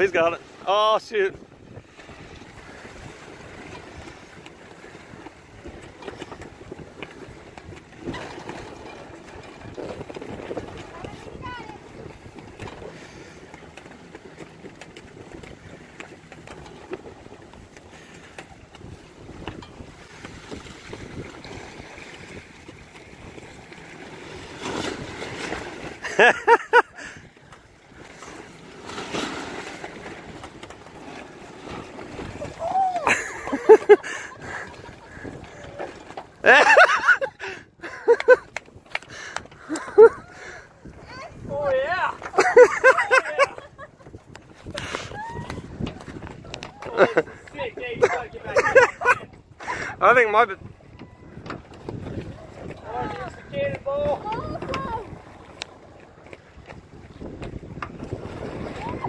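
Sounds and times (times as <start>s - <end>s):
water rushing and splashing: 0.0s - 59.0s
wind buffeting microphone: 0.0s - 59.0s.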